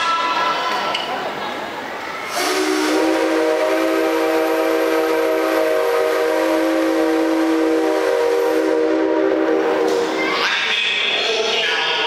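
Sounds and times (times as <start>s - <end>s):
steam locomotive whistle: 2.3s - 10.2s.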